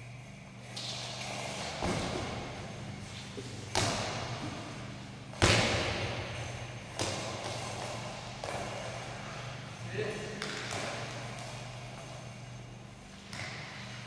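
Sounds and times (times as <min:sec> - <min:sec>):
heavy echoing thuds: 0:03.6 - 0:09.0.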